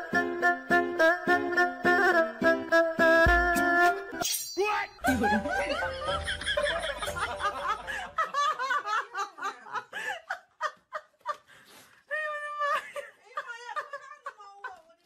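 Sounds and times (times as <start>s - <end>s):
person laughing: 5.0s - 11.4s.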